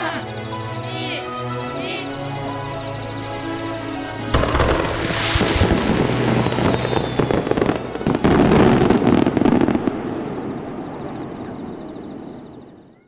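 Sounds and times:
faint falling whistle: 2.5 - 9.9
fireworks bursting and crackling: 3.9 - 12.6.

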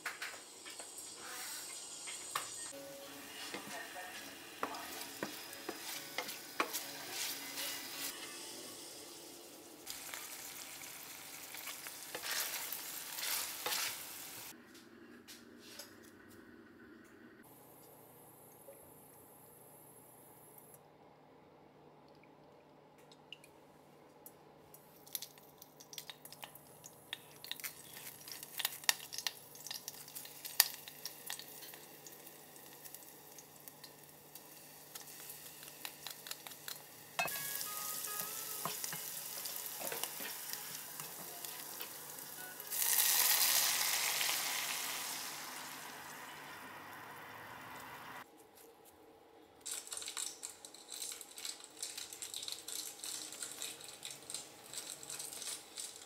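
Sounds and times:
hot oil crackling and sizzling: 0.0 - 3.4, 4.2 - 14.5, 25.0 - 48.2, 49.9 - 56.0
foil wrapper crinkling: 27.2 - 31.8, 49.7 - 56.0.

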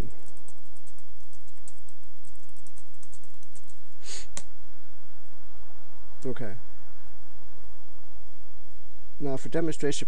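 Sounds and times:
steady low hum: 0.0 - 10.0
short hiss: 4.0 - 4.4.

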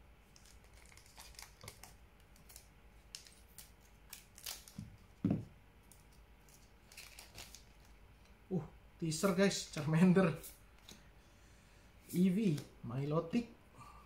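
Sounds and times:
foil wrapper crinkling: 0.2 - 5.2, 5.9 - 8.0.

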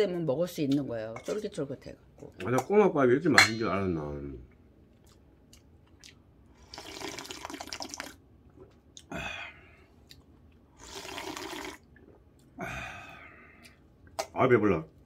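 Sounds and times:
person slurping soup: 6.6 - 8.2, 10.8 - 12.2.

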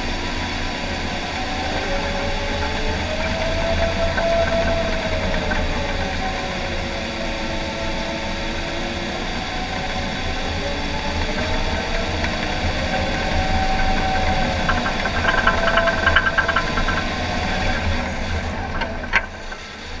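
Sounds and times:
bulldozer diesel engine running: 0.0 - 20.0
quick rattle: 11.6 - 20.0.

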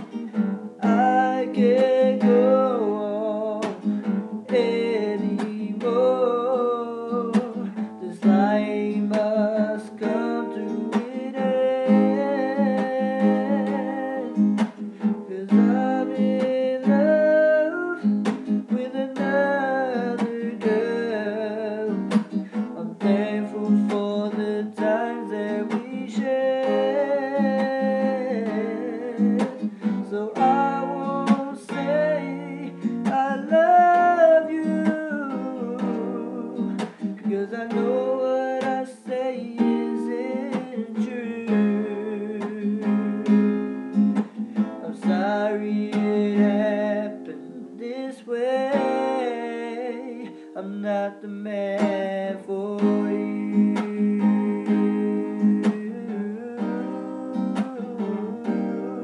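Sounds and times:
acoustic guitar strummed: 0.0 - 59.0
man singing wordless lines: 0.0 - 59.0.

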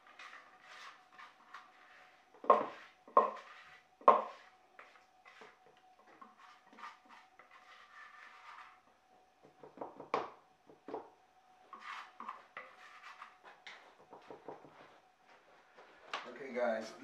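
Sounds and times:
spatula scraping and tapping bowl: 0.0 - 8.8, 11.7 - 14.9.

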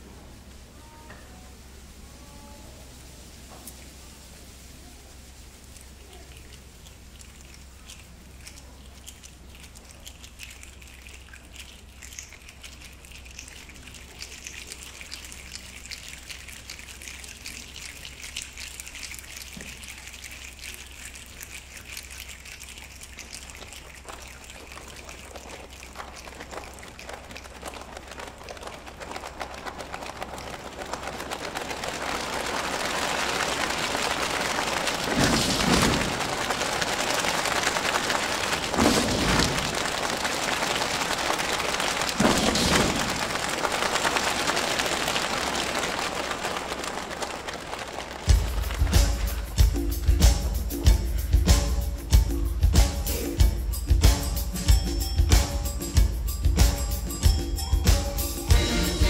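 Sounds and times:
hands rubbing together: 2.3 - 53.5
fingers snapping: 5.8 - 31.6.

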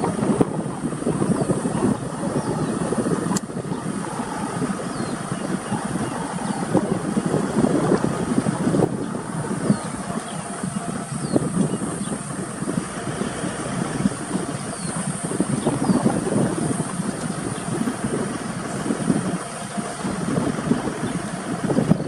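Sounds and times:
car engine idling: 0.0 - 22.0.

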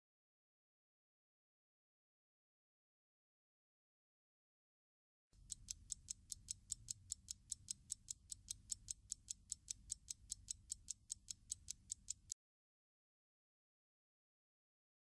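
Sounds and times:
clock ticking: 5.4 - 12.4.

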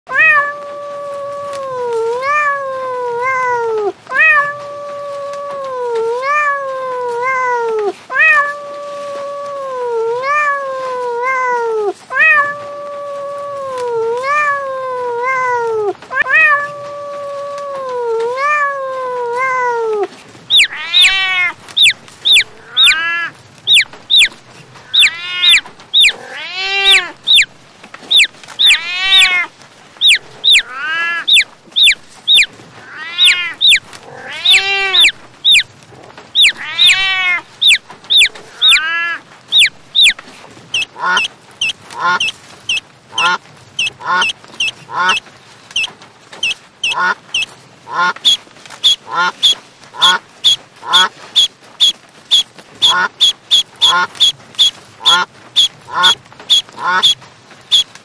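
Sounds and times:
cat meowing: 0.1 - 35.7, 36.3 - 40.2
kitten mewing: 0.1 - 35.7, 36.3 - 40.2.

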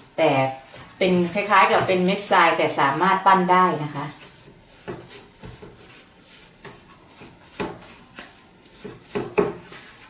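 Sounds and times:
spatula scraping steel bowl: 0.0 - 10.0.

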